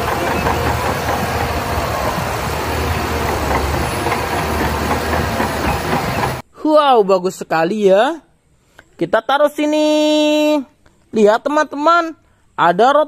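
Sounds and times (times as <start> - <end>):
bulldozer diesel engine running: 0.0 - 6.4.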